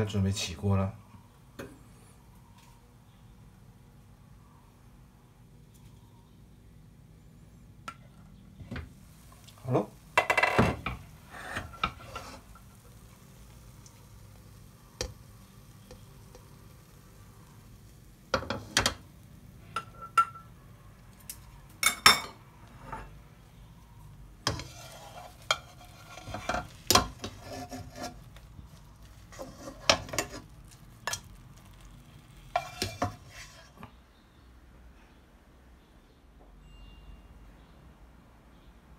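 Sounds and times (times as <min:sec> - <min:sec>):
spatula scraping a wok: 0:10.2 - 0:13.8, 0:22.7 - 0:23.2, 0:24.4 - 0:34.0.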